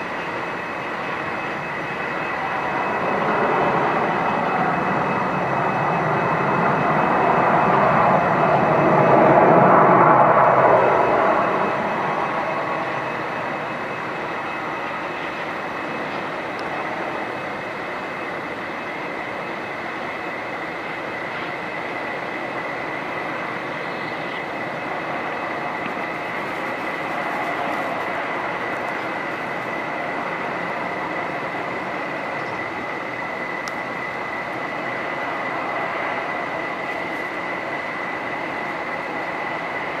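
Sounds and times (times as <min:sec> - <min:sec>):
jet engines rushing and whining: 0:00.0 - 0:40.0.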